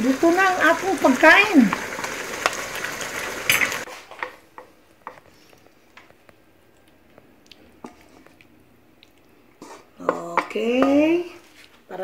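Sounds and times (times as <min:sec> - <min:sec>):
beef sizzling in a wok: 0:00.0 - 0:04.0.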